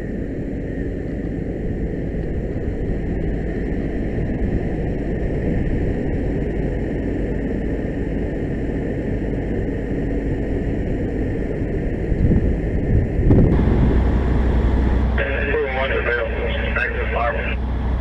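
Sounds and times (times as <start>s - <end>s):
diesel engine rumble: 12.0s - 18.0s.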